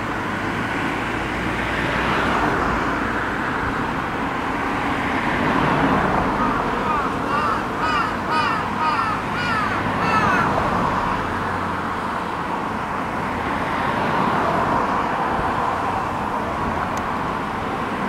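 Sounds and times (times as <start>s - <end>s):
urban traffic hum: 0.0s - 18.0s
crow cawing: 6.3s - 11.3s.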